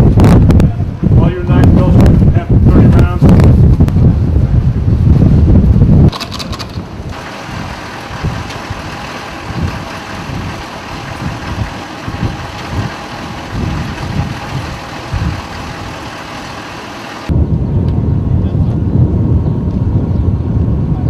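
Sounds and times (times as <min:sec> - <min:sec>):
wind buffeting microphone: 0:00.0 - 0:21.0
vehicle engines idling: 0:06.1 - 0:17.3.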